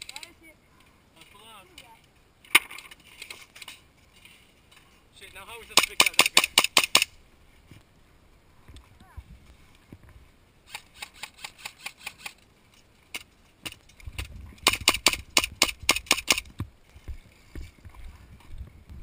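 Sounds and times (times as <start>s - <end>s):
airsoft pistol shots: 5.7s - 7.1s, 14.6s - 16.4s.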